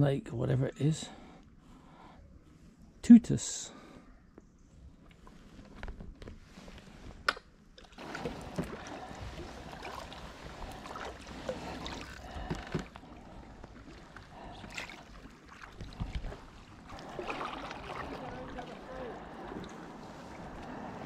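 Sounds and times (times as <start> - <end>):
paddle blades splashing: 7.8 - 21.0
water washing along hull: 7.9 - 21.0.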